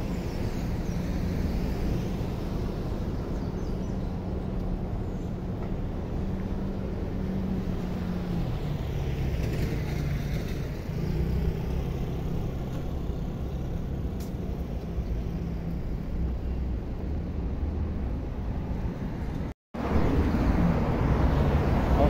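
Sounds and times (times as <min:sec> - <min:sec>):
cars passing with tyre noise: 0:00.0 - 0:22.0.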